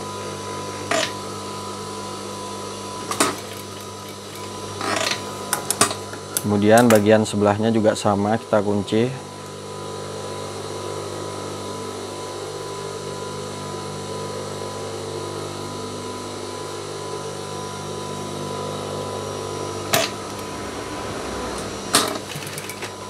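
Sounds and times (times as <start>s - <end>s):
sewing machine motor humming: 3.0s - 7.1s, 19.8s - 23.0s.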